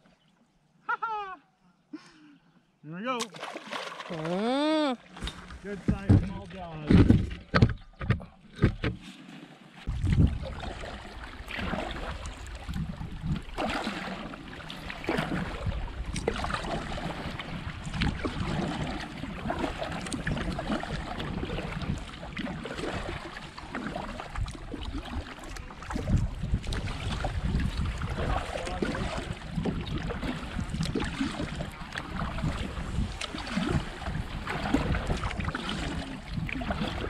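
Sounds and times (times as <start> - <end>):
paddle splashing in water: 3.2 - 37.0
wind on microphone: 9.9 - 13.8, 14.8 - 23.3, 24.2 - 37.0.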